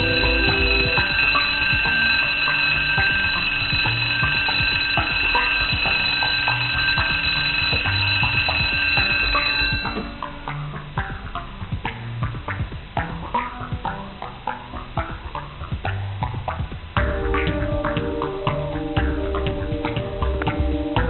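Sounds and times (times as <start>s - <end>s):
door warning alarm: 0.0s - 10.4s.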